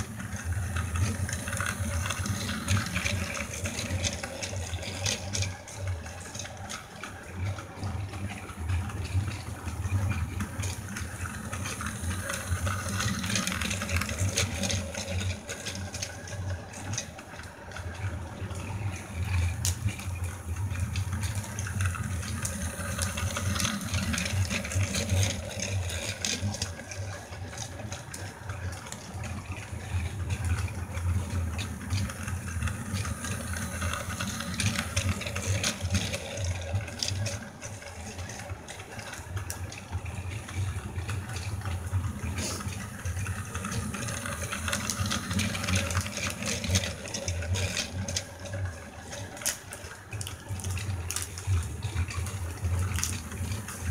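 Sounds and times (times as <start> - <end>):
toy train motor humming: 0.0 - 53.9
toy train wheels clattering: 21.0 - 29.0, 30.0 - 53.9.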